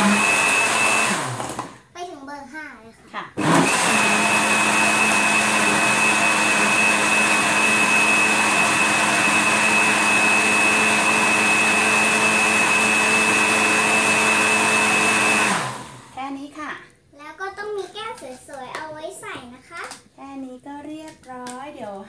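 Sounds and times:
blender motor whine: 0:00.0 - 0:01.8, 0:03.4 - 0:16.2.

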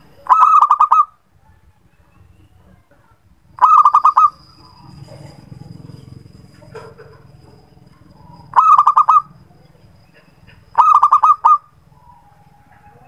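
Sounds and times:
dove cooing: 0:00.2 - 0:01.1, 0:03.6 - 0:13.0.

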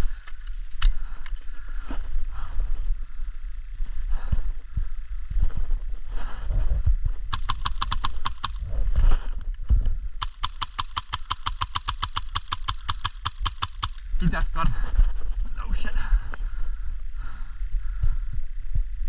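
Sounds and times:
airsoft gun firing full auto: 0:07.3 - 0:08.6, 0:10.2 - 0:14.1.

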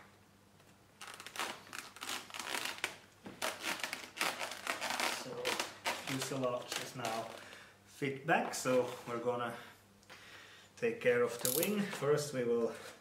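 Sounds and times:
foam crinkling and rustling: 0:01.0 - 0:07.6.

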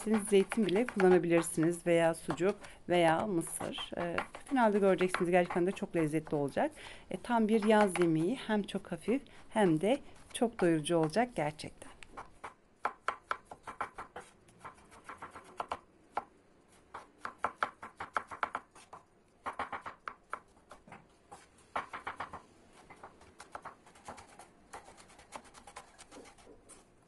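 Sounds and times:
knife chopping on wooden board: 0:00.0 - 0:02.6, 0:03.5 - 0:05.7, 0:16.9 - 0:26.5.

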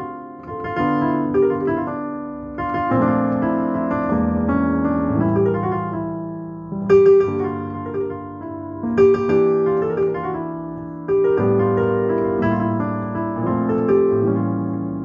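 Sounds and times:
electronic keyboard piano melody: 0:00.0 - 0:15.0.

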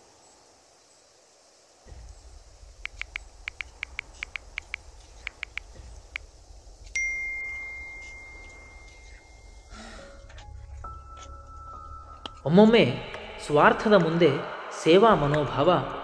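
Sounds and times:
phone keyboard taps: 0:02.8 - 0:06.2.

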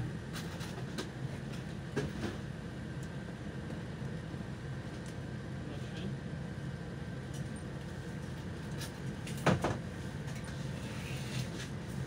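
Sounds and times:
bus rumbling: 0:00.0 - 0:12.0
sharp knock and rattle in cabin: 0:09.3 - 0:09.8.

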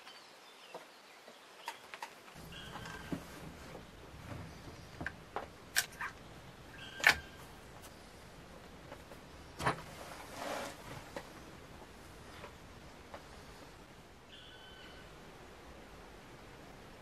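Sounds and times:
scraping rustle: 0:02.4 - 0:06.2, 0:06.8 - 0:11.4.

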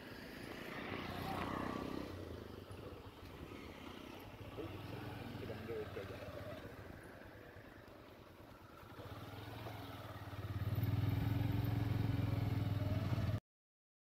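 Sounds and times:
vehicle engine drone: 0:00.0 - 0:13.4.

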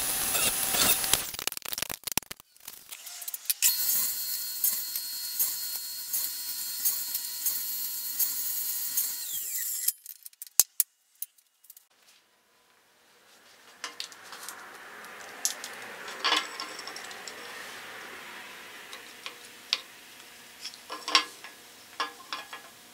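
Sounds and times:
saw cutting wood: 0:00.0 - 0:01.3, 0:02.5 - 0:10.0
table saw running: 0:02.9 - 0:09.9.

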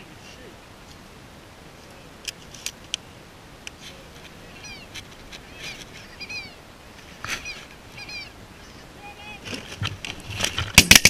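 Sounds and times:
geese yelping calls: 0:03.9 - 0:10.6.

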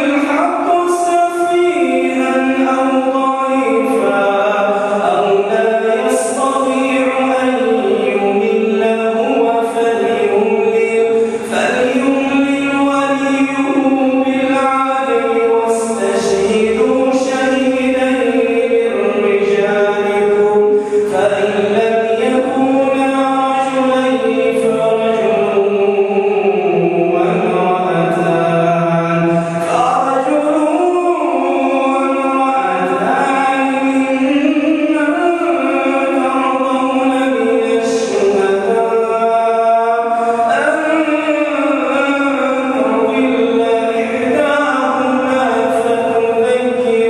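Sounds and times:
man chanting melodically: 0:00.0 - 0:47.0.

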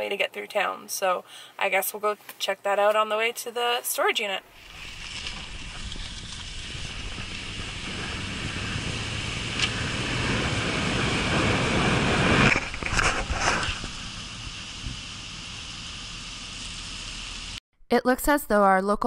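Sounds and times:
truck wind and road noise: 0:04.5 - 0:17.6.

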